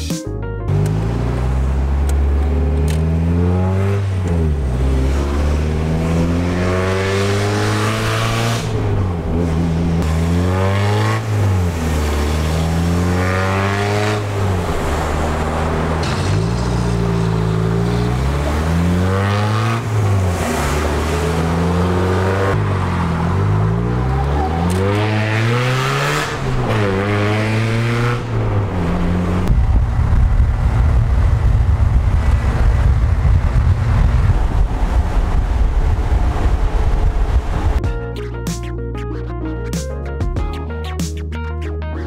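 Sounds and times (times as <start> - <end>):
car engine revving through gears: 0.7 - 29.5.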